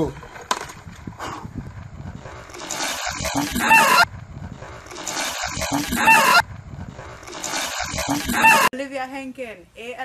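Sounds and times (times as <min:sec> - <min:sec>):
water pouring and splashing: 0:02.4 - 0:03.6, 0:04.7 - 0:06.0, 0:07.0 - 0:08.4
high wavering cry: 0:03.2 - 0:04.1, 0:05.5 - 0:06.4, 0:07.8 - 0:08.7.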